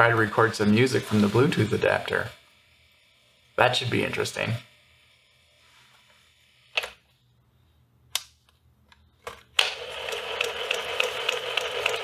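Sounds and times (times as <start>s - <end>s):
tape reels whirring and ticking: 9.6s - 12.0s.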